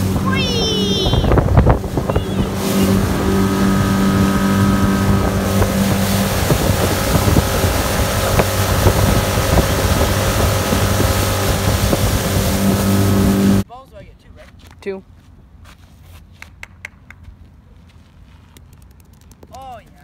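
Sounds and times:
outboard motor at full throttle: 0:00.0 - 0:13.6
wind noise on microphone: 0:00.0 - 0:13.6.

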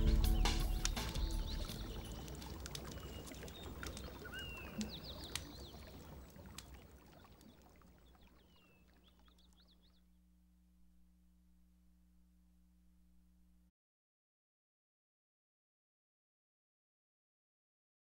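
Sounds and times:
bird chirps: 0:00.0 - 0:06.0
small splashes: 0:00.0 - 0:09.9
water lapping over rocks: 0:00.0 - 0:09.9
faint steady hum: 0:05.7 - 0:13.7.

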